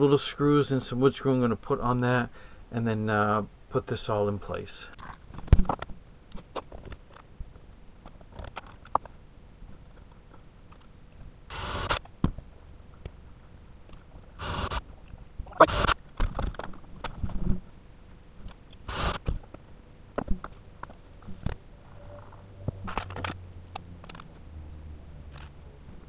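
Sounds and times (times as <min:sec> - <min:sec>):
cordless drill driving screws: 0:11.5 - 0:12.0, 0:14.4 - 0:14.8, 0:18.9 - 0:19.2.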